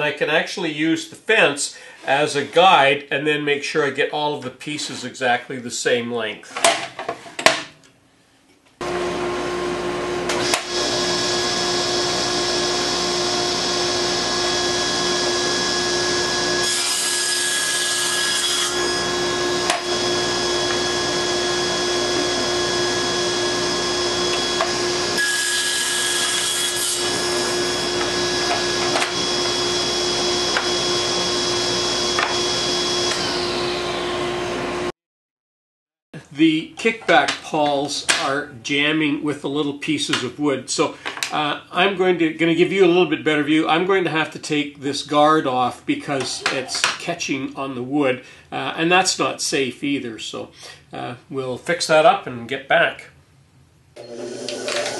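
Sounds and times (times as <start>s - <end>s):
table saw cutting wood: 8.8s - 34.9s, 54.0s - 54.9s.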